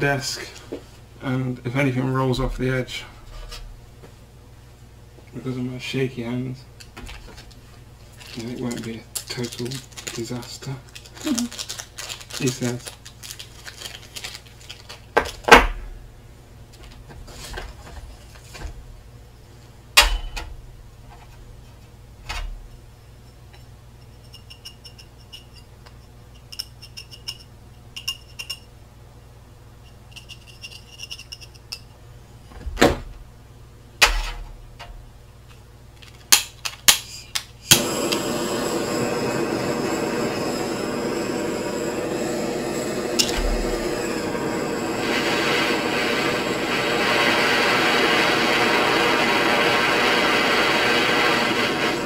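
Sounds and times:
blow torch hissing: 37.6 - 52.0.

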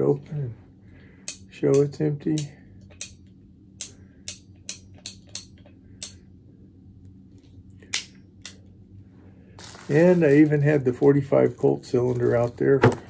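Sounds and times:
faint steady hum: 0.0 - 13.0
revolver cylinder clicking: 1.2 - 6.2.

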